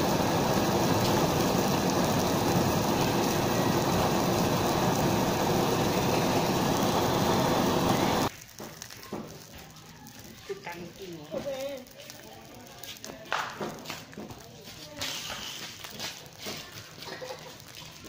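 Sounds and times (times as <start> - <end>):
blow torch flame hissing: 0.0 - 8.5.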